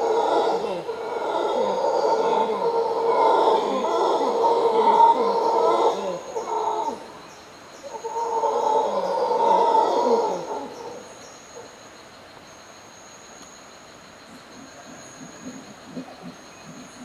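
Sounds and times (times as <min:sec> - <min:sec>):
howler monkey roaring: 0:00.0 - 0:07.2, 0:07.9 - 0:11.1, 0:14.8 - 0:17.0.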